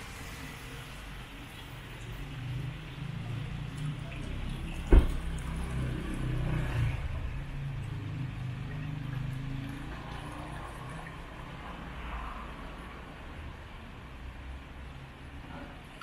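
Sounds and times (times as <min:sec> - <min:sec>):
street traffic engine rumble: 0:00.0 - 0:16.0
sudden thump: 0:04.9 - 0:05.2.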